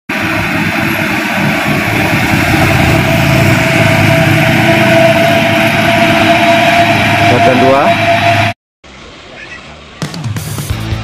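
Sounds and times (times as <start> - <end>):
steady whine: 0.1 - 8.6
truck diesel engine pulling: 0.1 - 8.6.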